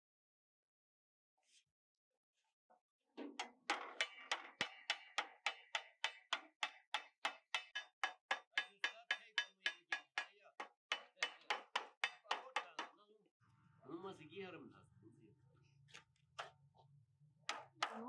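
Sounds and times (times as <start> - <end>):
hammer striking metal: 3.2 - 13.0, 17.5 - 18.0.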